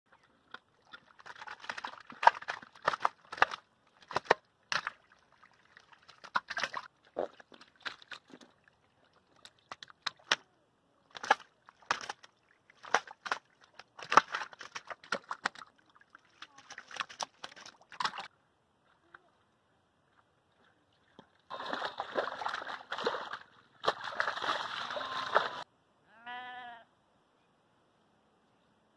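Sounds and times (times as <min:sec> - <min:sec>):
fish flopping in water: 0:00.5 - 0:08.6, 0:11.1 - 0:15.7, 0:21.5 - 0:25.6.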